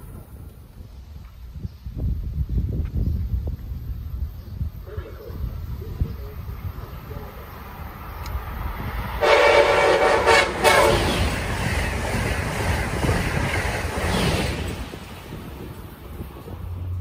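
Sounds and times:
passing train rumble and rattle: 0.0 - 17.0
train horn chord: 9.2 - 11.2.

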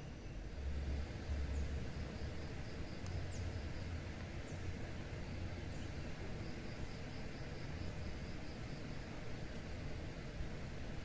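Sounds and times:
high pulsing insect call: 0.0 - 11.0
steady rush of river: 0.0 - 11.0.

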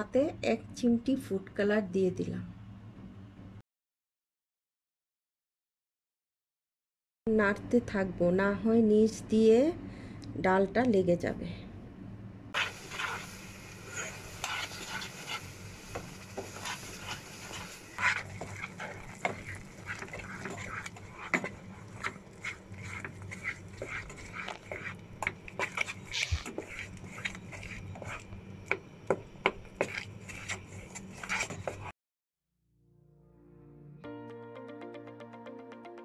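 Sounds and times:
wooden spatula scraping a pan: 12.6 - 28.3, 29.4 - 31.9.

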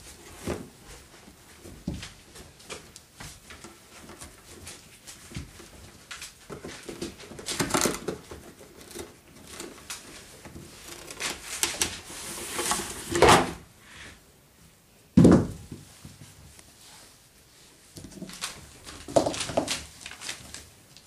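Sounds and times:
cardboard scraping and rustling: 6.4 - 13.6.

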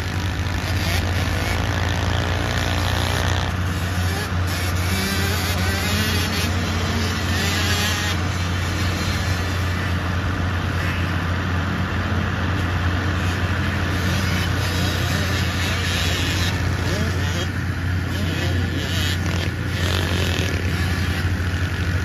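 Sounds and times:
pit bike engines droning: 0.0 - 22.0.

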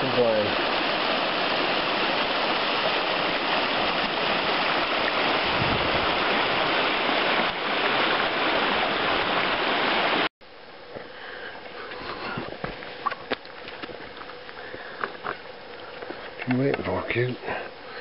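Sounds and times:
stream rushing over rocks: 0.0 - 10.3.

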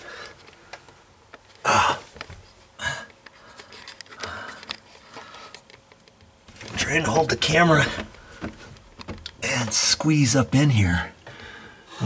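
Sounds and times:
rustling and handling noise: 0.0 - 11.8
man grunting and exhaling: 1.6 - 2.1.

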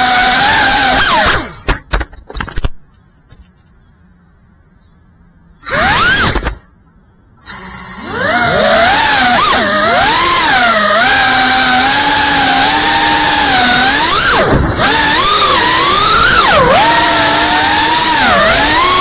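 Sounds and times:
drone motors whining: 0.0 - 1.7, 5.5 - 19.0.

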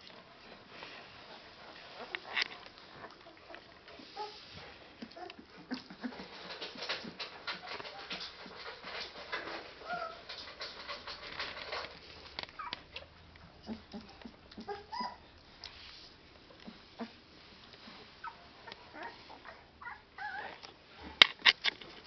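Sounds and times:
puppies suckling wet clicks: 1.2 - 19.6
puppies squeaking and whimpering: 9.8 - 11.3, 12.5 - 13.0, 13.6 - 15.4, 18.2 - 20.6.

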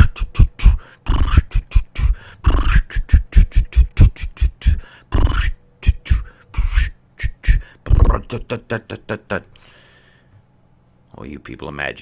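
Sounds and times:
man beatboxing: 0.0 - 9.1.

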